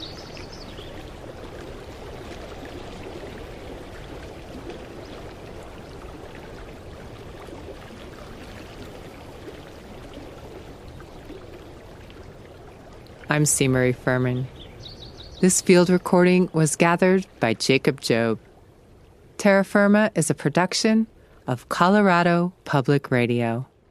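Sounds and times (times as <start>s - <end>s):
creek water rushing: 0.0s - 19.4s.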